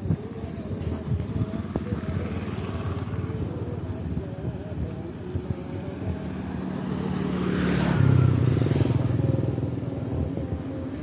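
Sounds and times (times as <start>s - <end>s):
motorcycle passing by: 0.3s - 11.0s.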